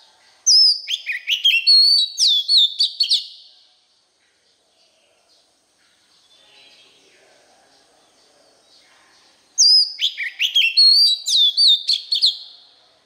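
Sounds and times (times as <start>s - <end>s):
bird singing whistled notes: 0.5s - 3.5s, 9.6s - 12.7s.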